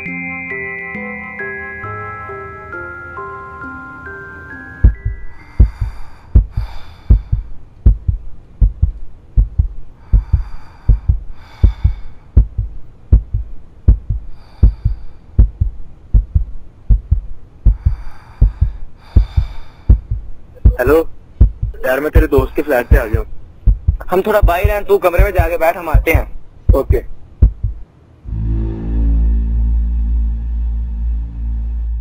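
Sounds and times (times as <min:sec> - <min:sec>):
music box chime melody: 0:00.0 - 0:05.6
heartbeat double thump: 0:04.8 - 0:27.8
shimmering hissy swell: 0:28.3 - 0:32.0.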